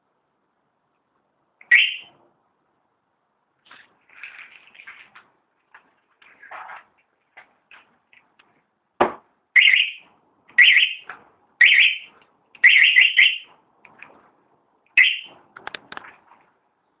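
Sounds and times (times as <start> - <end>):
alarm siren chirping: 1.7 - 2.2, 9.6 - 13.5, 15.0 - 15.4.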